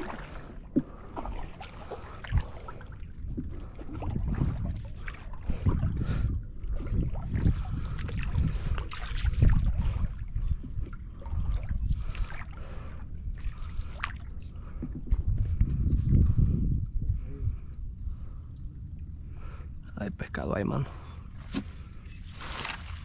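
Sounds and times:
water swishing along canoe hull: 0:00.0 - 0:19.7, 0:20.9 - 0:23.0
wind rumble on microphone: 0:00.0 - 0:23.0.

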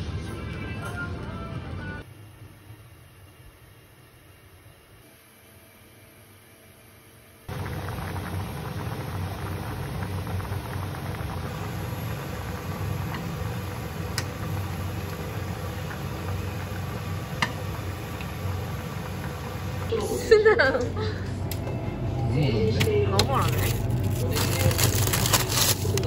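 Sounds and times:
stew bubbling in a pot: 0:07.5 - 0:20.0.

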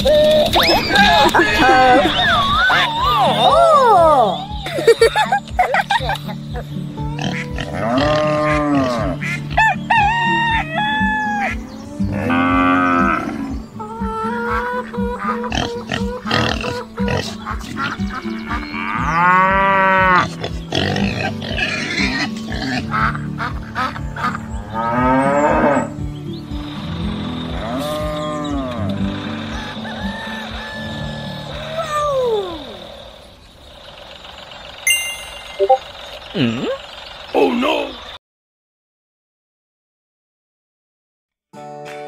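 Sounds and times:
background music with steady beat: 0:03.2 - 0:15.6
drawn-out arching animal call: 0:06.5 - 0:34.8
cow mooing: 0:07.2 - 0:09.2, 0:12.1 - 0:13.6, 0:24.8 - 0:25.9
rooster crowing: 0:09.7 - 0:11.4, 0:29.6 - 0:31.4.

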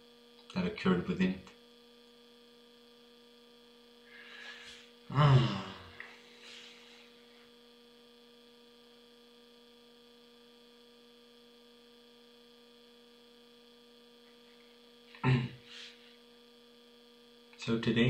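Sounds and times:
faint electrical mains hum: 0:00.0 - 0:18.0
brief vocal sound: 0:04.4 - 0:06.1, 0:15.2 - 0:15.9.

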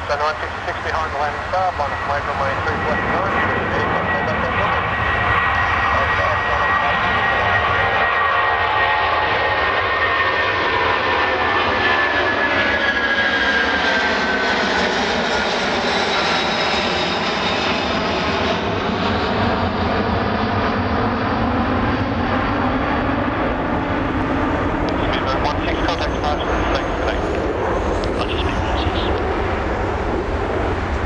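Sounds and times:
high jet fan whine: 0:00.0 - 0:31.0
jet engine rumble: 0:00.0 - 0:31.0.

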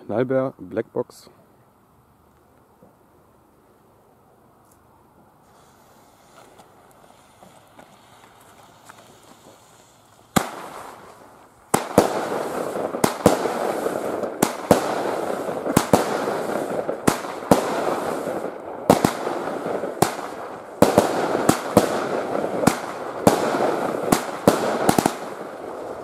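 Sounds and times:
fireworks bangs: 0:05.4 - 0:26.0.

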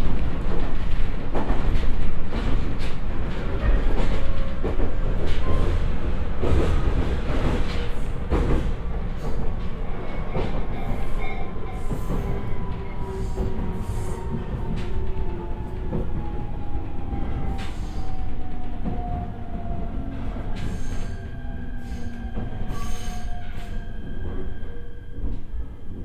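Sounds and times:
train running rumble: 0:00.0 - 0:26.0.

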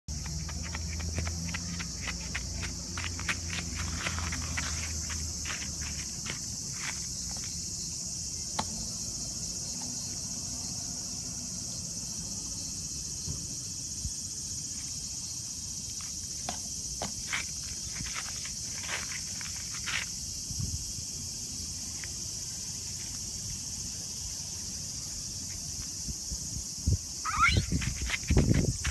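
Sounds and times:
footsteps on gravel: 0:00.1 - 0:07.6, 0:17.1 - 0:20.1, 0:27.7 - 0:28.9
insects droning: 0:00.1 - 0:28.9.

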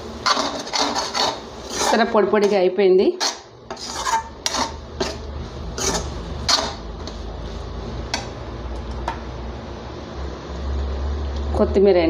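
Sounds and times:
metal spatula scraping a pan: 0:00.2 - 0:07.7.

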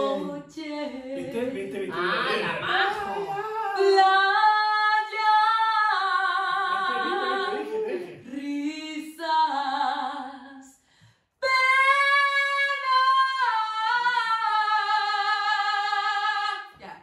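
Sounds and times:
woman singing unaccompanied: 0:00.0 - 0:10.7.

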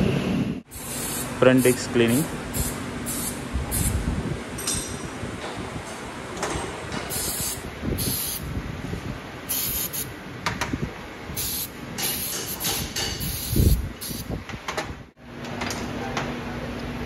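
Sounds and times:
aerosol spray hissing: 0:00.7 - 0:01.8, 0:02.6 - 0:04.0, 0:07.1 - 0:08.4, 0:09.5 - 0:10.1, 0:11.4 - 0:14.2
workshop clatter: 0:00.7 - 0:08.5, 0:11.4 - 0:16.5.

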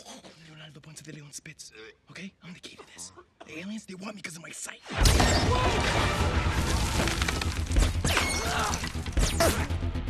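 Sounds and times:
debris smashing and crashing: 0:05.0 - 0:09.3.

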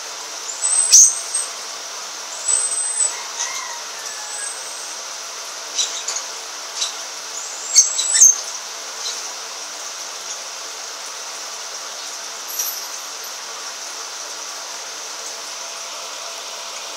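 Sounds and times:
bird chick chirping: 0:02.4 - 0:05.0, 0:05.8 - 0:09.2.

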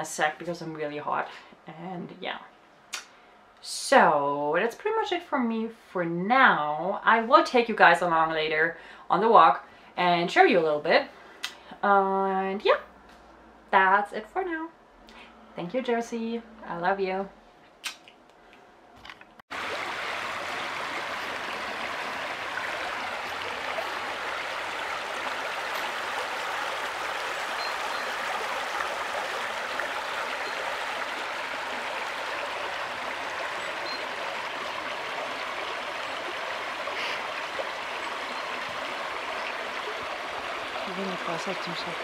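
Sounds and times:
brook flowing over stones: 0:19.5 - 0:42.0.

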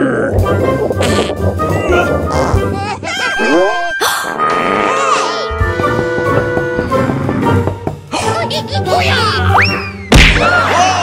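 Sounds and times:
background music: 0:00.0 - 0:11.0
loud sharp whack: 0:10.1 - 0:10.5.

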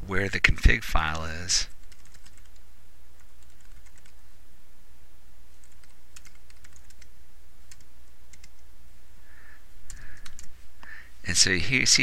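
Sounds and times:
steady low hum: 0:00.0 - 0:12.0
computer keyboard keys clicking: 0:01.7 - 0:02.6, 0:03.2 - 0:04.2, 0:05.6 - 0:07.1, 0:07.7 - 0:08.6, 0:09.9 - 0:10.5.

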